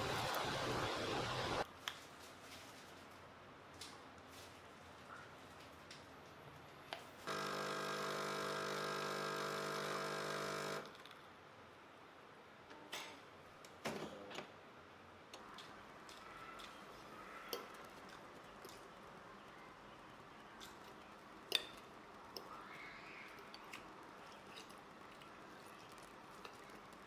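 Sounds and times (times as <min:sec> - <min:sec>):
coffee machine whirring: 0:07.2 - 0:10.9.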